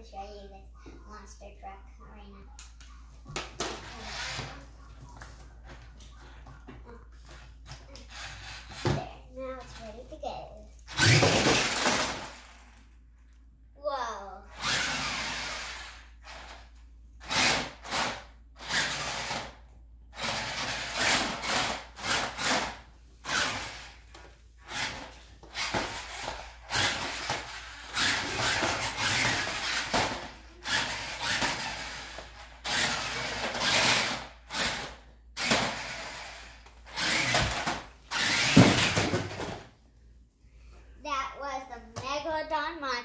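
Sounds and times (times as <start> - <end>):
toy truck electric motor whirring: 3.6 - 4.7, 7.3 - 9.0, 10.8 - 13.0, 14.5 - 39.6
tyres rolling on hardwood floor: 10.9 - 12.8, 20.2 - 39.7.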